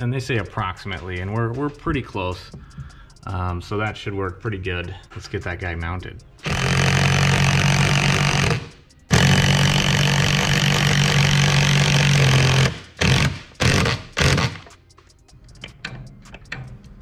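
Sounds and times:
power drill driving screws: 6.4 - 14.8.

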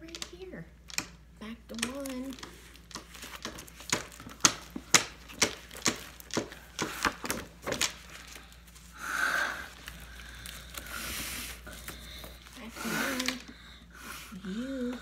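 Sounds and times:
book pages flapping: 1.7 - 13.5
paper rustling: 2.0 - 8.9, 9.6 - 13.5.

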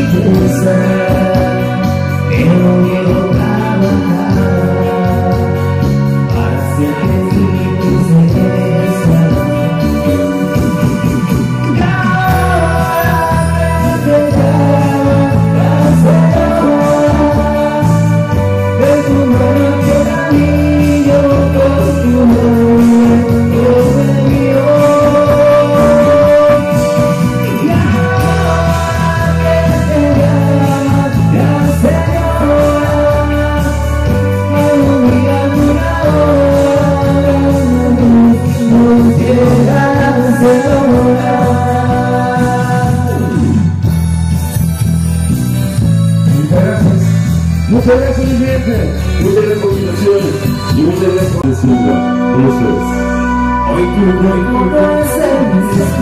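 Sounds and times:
live band playing slow ballad: 0.0 - 56.0.

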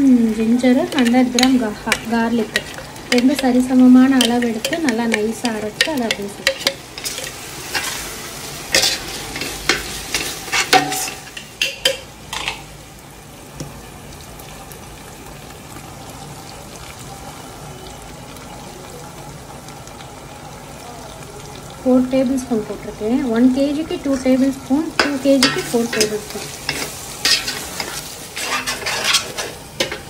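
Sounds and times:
sizzling in oil: 0.0 - 30.0
metal ladle scraping steel pot: 0.9 - 8.1, 8.7 - 12.6, 25.0 - 30.0.

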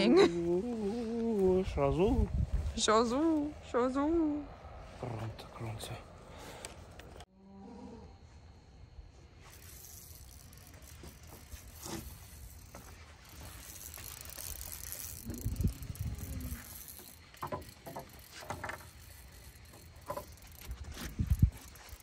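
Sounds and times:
fishing reel whirring: 9.4 - 22.0.

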